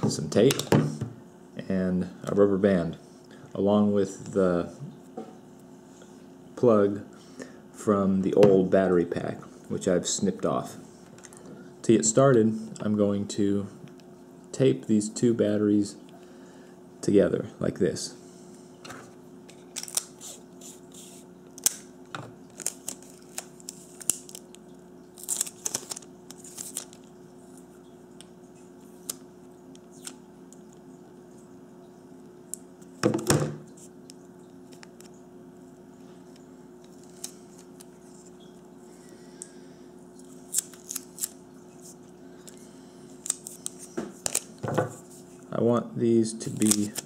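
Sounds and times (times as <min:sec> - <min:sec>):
steady low hum: 0:00.0 - 0:47.0
tape ripping and rustling: 0:19.6 - 0:21.8, 0:22.5 - 0:24.4, 0:25.2 - 0:27.0, 0:40.5 - 0:41.4, 0:43.2 - 0:44.6.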